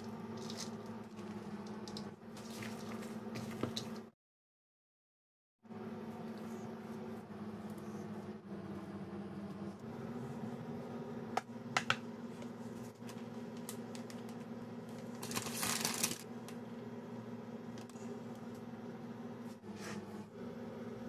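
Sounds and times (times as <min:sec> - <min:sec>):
steady low hum: 0:05.7 - 0:21.0
food rustling on metal tray: 0:15.0 - 0:16.2.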